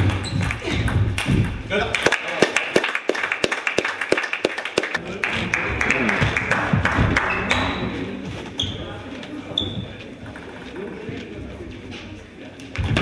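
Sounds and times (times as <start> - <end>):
people clapping: 1.7 - 8.0.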